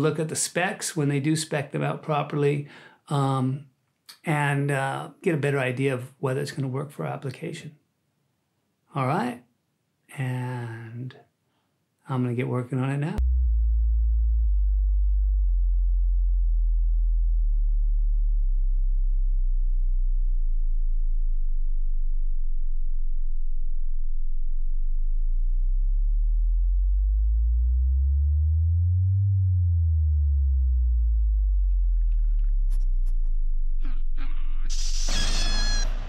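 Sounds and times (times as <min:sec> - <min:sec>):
deep electronic sine tones: 0:13.2 - 0:36.0.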